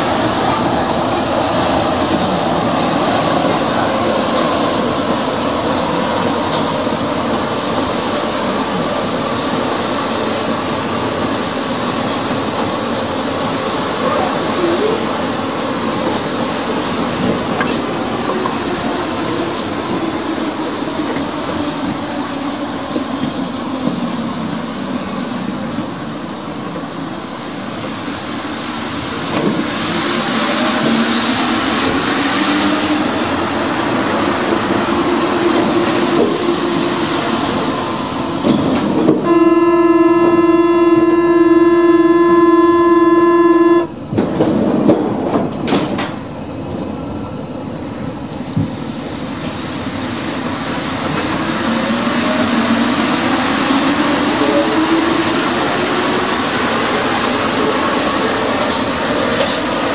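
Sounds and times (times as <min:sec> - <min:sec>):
train running noise: 0:00.0 - 0:59.9
loud buzzing tone: 0:39.2 - 0:44.0.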